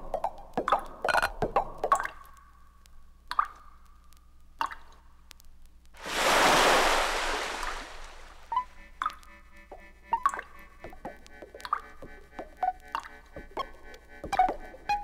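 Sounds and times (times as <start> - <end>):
surf wave rushing: 6.0 - 8.5.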